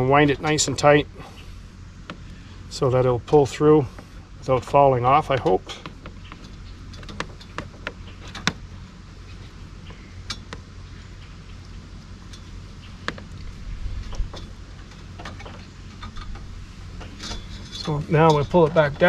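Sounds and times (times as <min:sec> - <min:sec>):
wire twisting clicks and rattles: 0:05.1 - 0:08.6, 0:11.7 - 0:19.0.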